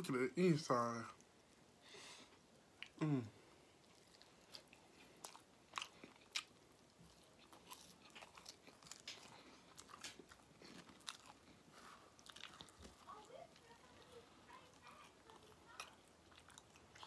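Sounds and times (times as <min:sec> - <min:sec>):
crunchy chewing: 0:03.7 - 0:17.0.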